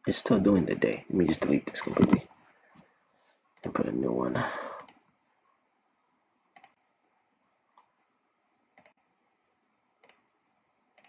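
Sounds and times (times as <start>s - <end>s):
computer mouse clicks: 4.8s - 5.1s, 6.5s - 6.8s, 8.7s - 9.1s, 10.0s - 10.3s.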